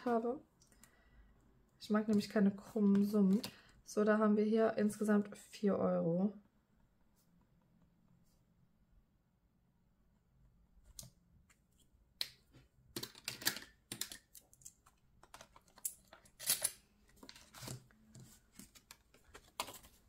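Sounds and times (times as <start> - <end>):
hands handling cash and paper: 12.9 - 20.0.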